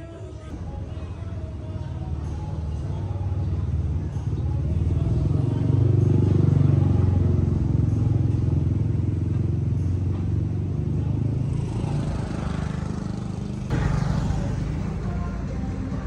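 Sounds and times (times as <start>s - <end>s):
motorcycle engine running: 0.7s - 16.0s
loud busy noise: 11.1s - 16.0s.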